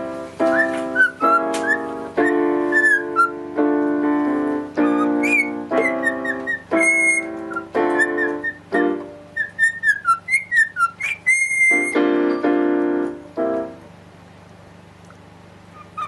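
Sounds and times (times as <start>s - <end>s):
piano chords: 0.0s - 16.0s
cockatiel whistling: 0.4s - 3.4s, 4.8s - 12.1s, 15.7s - 16.0s.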